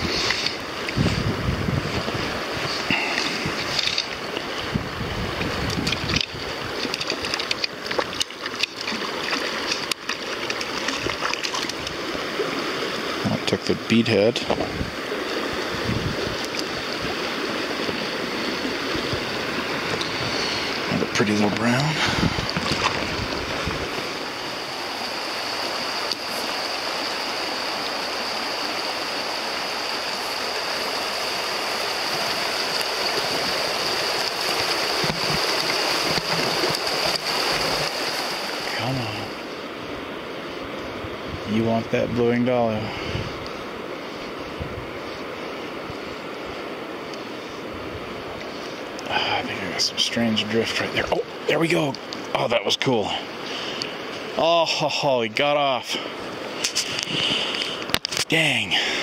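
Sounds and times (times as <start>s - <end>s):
river water rushing: 0.0s - 59.0s
sharp water splashes: 5.4s - 13.2s, 16.3s - 38.9s.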